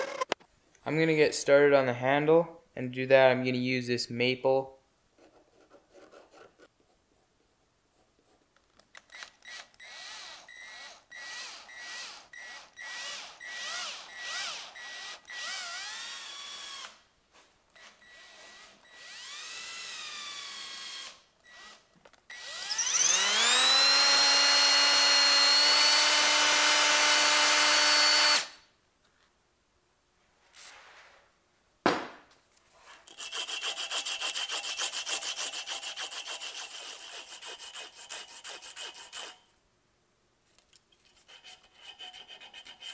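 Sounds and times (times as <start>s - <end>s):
cordless drill spinning: 9.1s - 17.0s, 17.8s - 28.6s.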